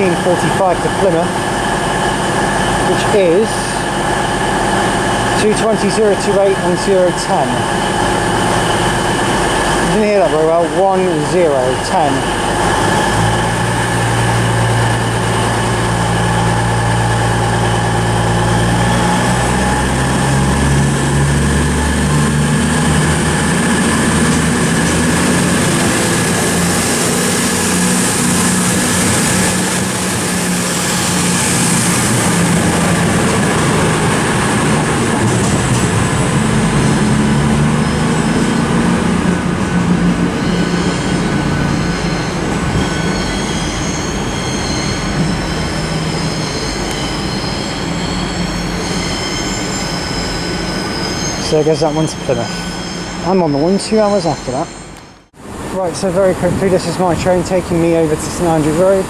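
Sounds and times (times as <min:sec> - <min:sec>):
train diesel engines: 0:00.0 - 0:59.0
wheel and rail noise: 0:00.0 - 0:59.0
high-pitched wheel squeals: 0:35.7 - 0:55.3.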